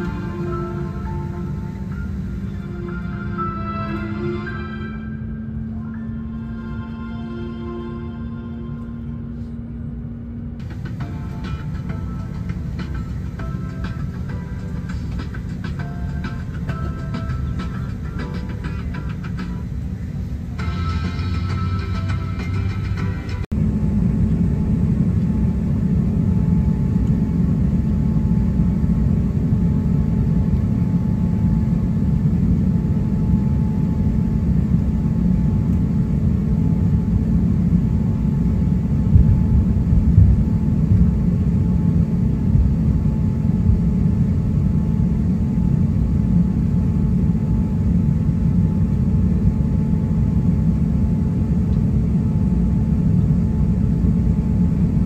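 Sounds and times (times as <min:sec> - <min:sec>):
jet engines rumbling: 0:00.0 - 0:07.4, 0:08.2 - 0:55.0
faint steady whine: 0:00.0 - 0:55.0.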